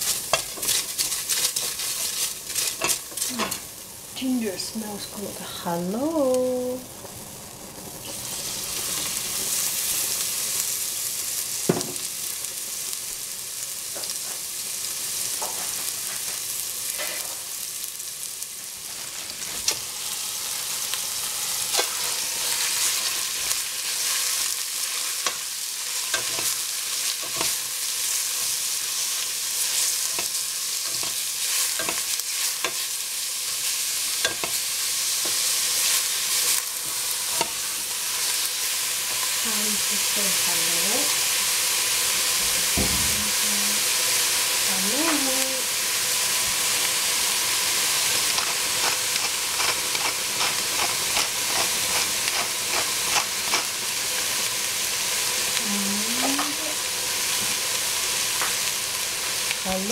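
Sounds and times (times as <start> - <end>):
wooden spatula scraping a pot: 0.0 - 3.6, 48.3 - 53.7
food sizzling in a pot: 0.0 - 59.9.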